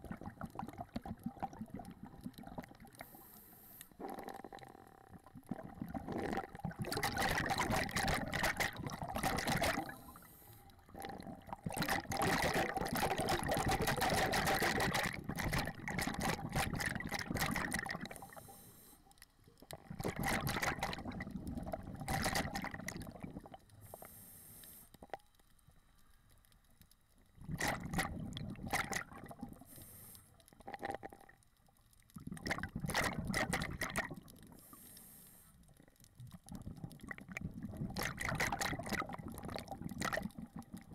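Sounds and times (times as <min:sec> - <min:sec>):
exhaled bubbles rushing: 0:00.0 - 0:03.0, 0:04.0 - 0:10.2, 0:10.8 - 0:18.4, 0:19.6 - 0:23.6, 0:27.4 - 0:29.6, 0:32.2 - 0:34.5, 0:36.2 - 0:40.9
diver breathing through regulator: 0:18.2 - 0:19.1, 0:23.8 - 0:25.0, 0:29.6 - 0:30.3, 0:34.6 - 0:35.6.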